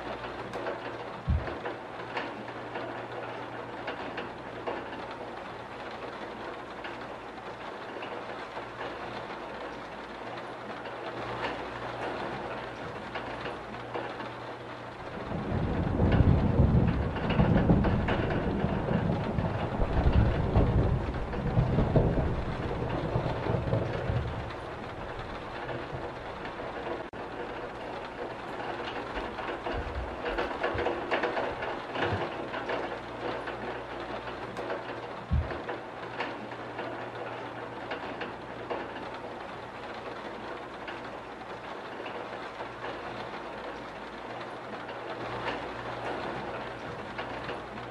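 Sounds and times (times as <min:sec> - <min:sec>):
low rumble of thunder: 0:00.0 - 0:09.7, 0:10.8 - 0:39.4
steady rain: 0:00.0 - 0:47.9.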